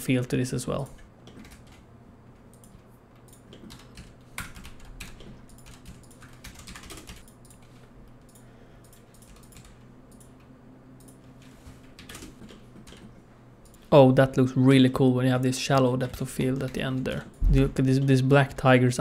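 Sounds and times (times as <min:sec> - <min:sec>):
faint low hum: 0:00.0 - 0:19.0
keyboard typing: 0:01.0 - 0:13.9.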